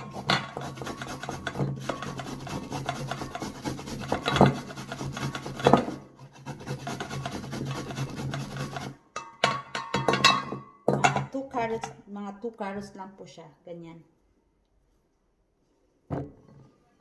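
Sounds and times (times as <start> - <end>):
carrot rasping on metal grater: 0.0 - 9.0.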